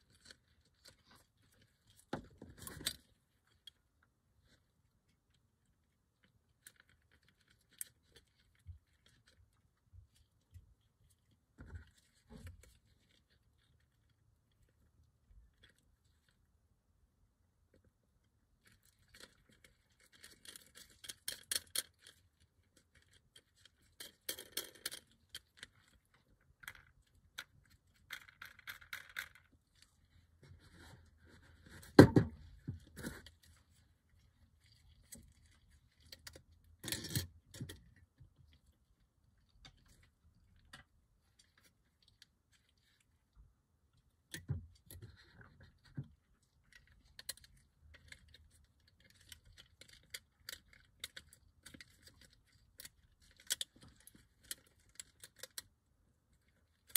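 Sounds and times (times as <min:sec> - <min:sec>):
clicks and rattles of model parts: 0:18.6 - 0:29.9, 0:34.6 - 0:38.0, 0:44.3 - 0:55.7.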